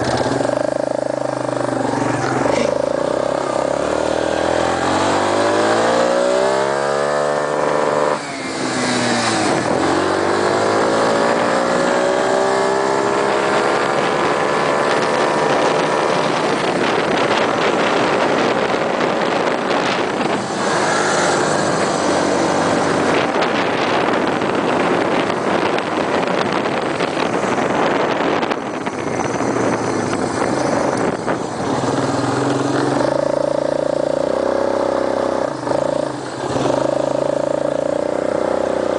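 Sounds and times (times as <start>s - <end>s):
buggy engine revving: 0.0s - 38.9s
steady rushing noise: 8.1s - 38.9s.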